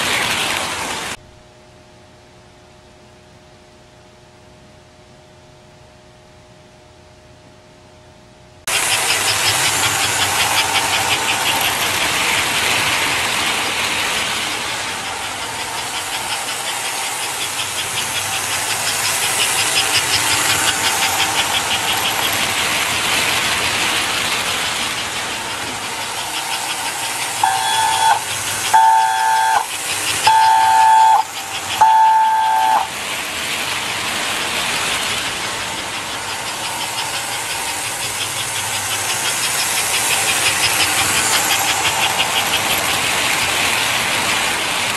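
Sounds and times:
toy train clattering on track: 0:08.7 - 0:44.9
toy train whistle blasts: 0:27.4 - 0:32.9.

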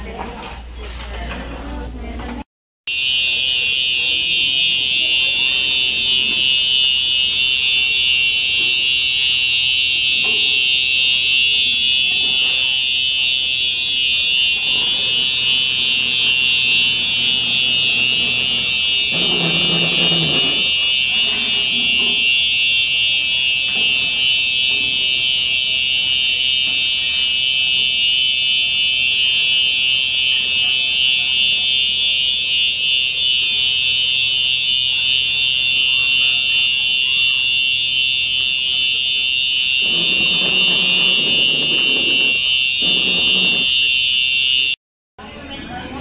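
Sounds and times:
coffee machine high-pitched whine: 0:12.2 - 0:22.5, 0:39.8 - 0:43.8.

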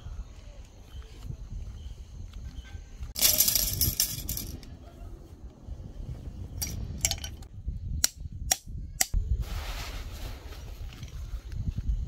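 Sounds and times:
tent stakes clattering onto gravel: 0:03.2 - 0:04.6
hammer striking metal tent stake: 0:08.0 - 0:09.2.

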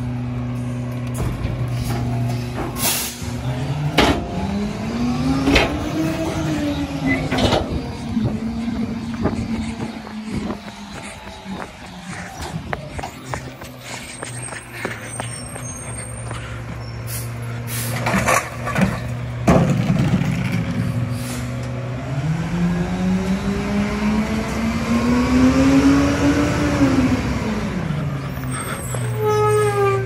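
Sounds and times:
truck diesel engine revving: 0:00.0 - 0:30.0
air brake hiss: 0:02.8 - 0:03.3, 0:21.1 - 0:21.6.

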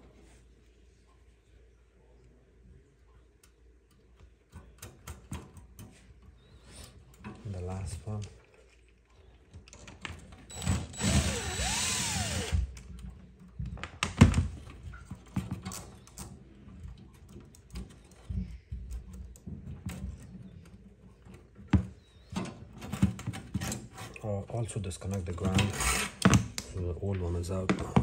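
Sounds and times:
wire connectors clicking and knocking: 0:03.4 - 0:24.2, 0:25.0 - 0:28.0.

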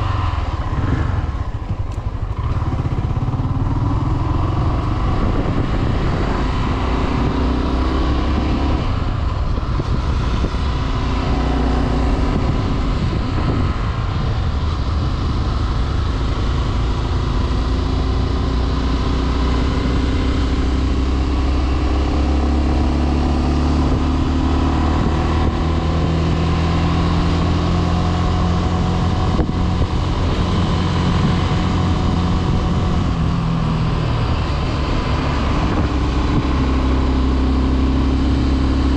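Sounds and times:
motorcycle engine running: 0:00.0 - 0:38.9.

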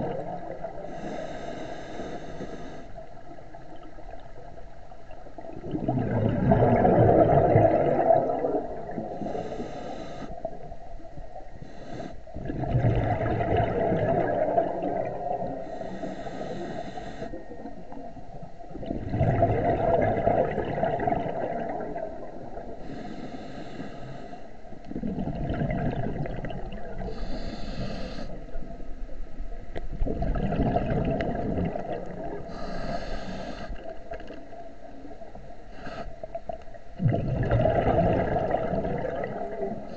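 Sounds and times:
exhaled bubbles rushing: 0:00.0 - 0:00.9, 0:03.2 - 0:09.4, 0:12.4 - 0:15.7, 0:17.3 - 0:22.8, 0:24.9 - 0:27.2, 0:29.9 - 0:32.6, 0:36.5 - 0:39.9
regulator inhale hissing: 0:00.8 - 0:03.2, 0:09.1 - 0:10.6, 0:11.6 - 0:12.4, 0:15.5 - 0:17.7, 0:22.8 - 0:24.8, 0:27.0 - 0:28.7, 0:32.4 - 0:34.4, 0:35.7 - 0:36.5.

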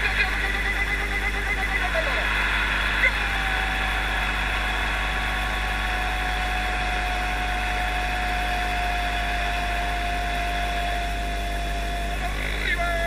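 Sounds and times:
long held tone: 0:00.0 - 0:13.0
stadium crowd din: 0:01.7 - 0:10.6.

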